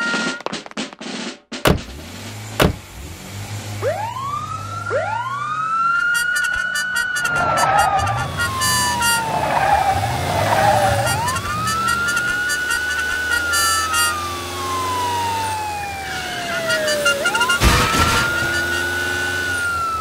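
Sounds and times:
low vehicle rumble: 1.7s - 6.1s
police sirens wailing: 3.6s - 20.0s.

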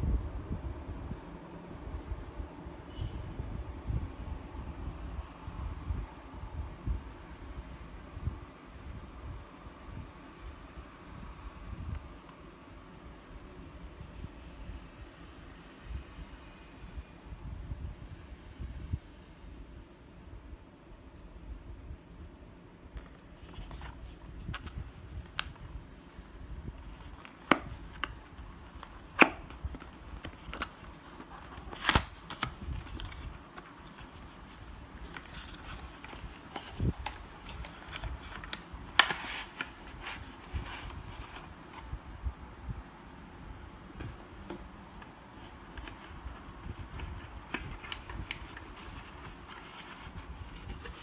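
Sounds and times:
packaging rustling: 26.8s - 41.6s.

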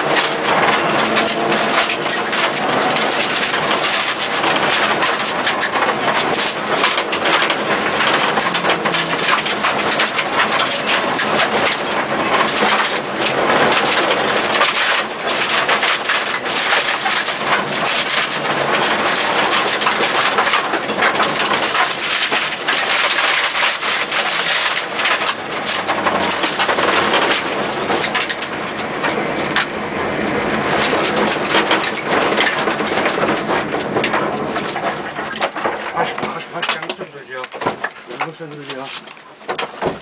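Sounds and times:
car engine and road noise: 0.0s - 40.0s
stones rattling on car underbody: 0.0s - 40.0s.

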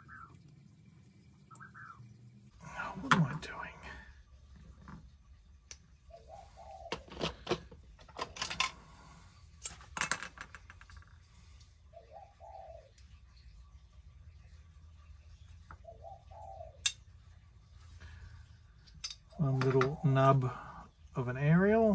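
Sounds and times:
dove cooing: 1.5s - 3.6s, 6.1s - 9.2s, 11.9s - 13.0s, 15.7s - 16.9s, 19.4s - 20.8s.

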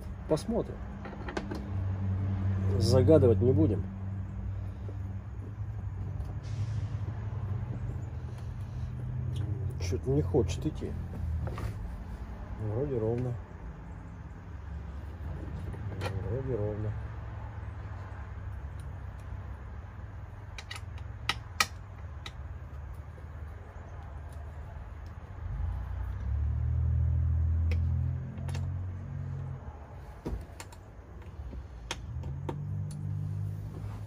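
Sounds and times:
metal hardware clicks and taps: 1.0s - 1.7s, 20.4s - 23.0s, 27.6s - 28.7s.

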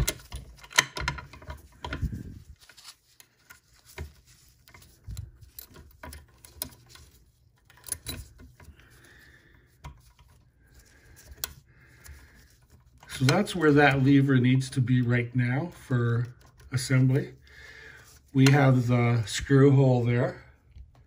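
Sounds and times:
small steel parts clicking: 3.1s - 8.9s.

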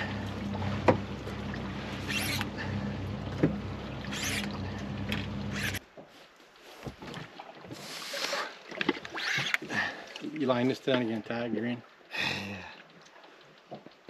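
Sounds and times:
boat motor humming: 0.0s - 5.8s.

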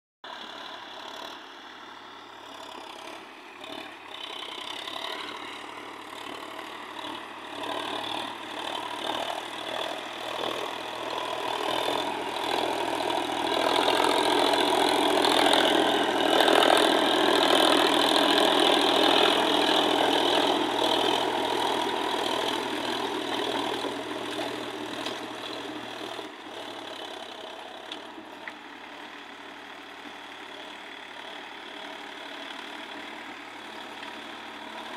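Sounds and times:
tractor engine under load: 0.2s - 34.9s
rotavator blades churning soil: 4.6s - 28.2s.

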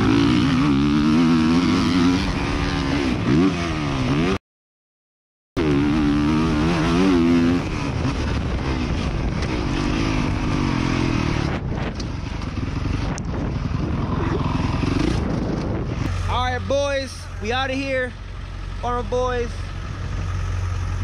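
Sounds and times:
dirt bike engine revving: 0.0s - 4.4s, 5.6s - 17.9s.

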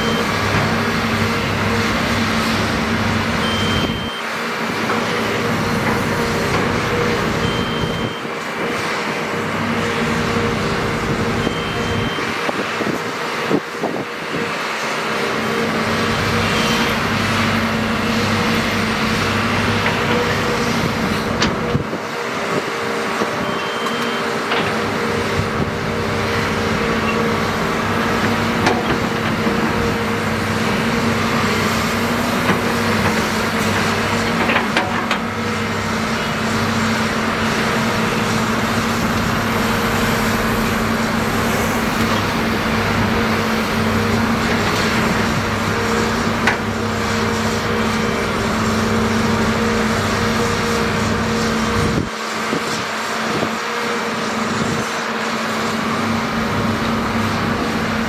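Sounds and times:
excavator engine and hydraulics: 0.0s - 58.0s.

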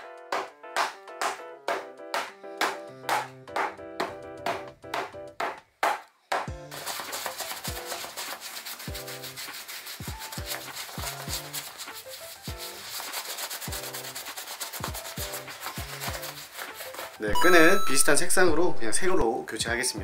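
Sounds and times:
background music with a beat: 0.0s - 8.2s, 8.8s - 18.2s
brush scrubbing leather: 6.7s - 17.3s.

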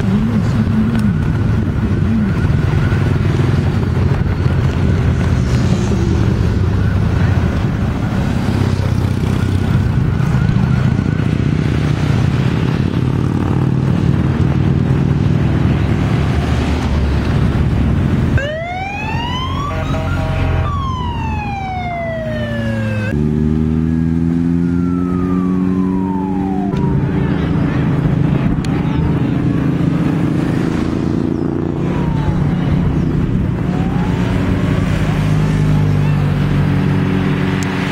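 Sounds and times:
motorcycles and cars passing: 0.0s - 37.9s
siren wailing: 18.3s - 23.2s, 24.3s - 28.1s, 31.4s - 35.9s.

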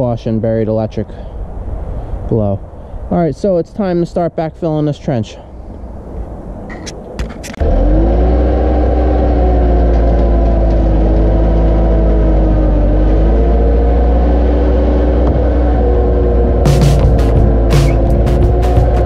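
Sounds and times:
diesel engine running: 7.6s - 19.0s.

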